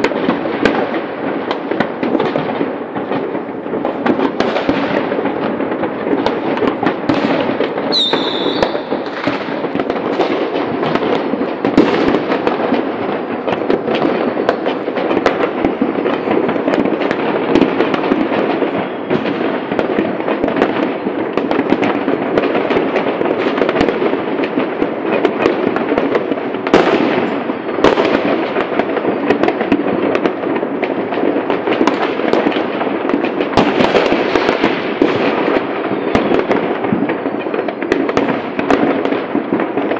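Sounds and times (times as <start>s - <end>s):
fireworks crackling and banging: 0.0s - 39.9s
loud firework bangs: 0.0s - 39.9s
falling firework whistle: 6.6s - 11.0s, 18.7s - 19.8s.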